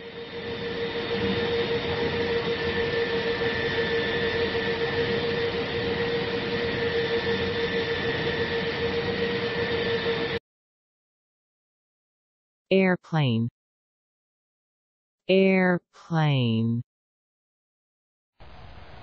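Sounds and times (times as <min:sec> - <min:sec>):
cable car whirring hum: 0:00.0 - 0:10.4, 0:18.4 - 0:19.0.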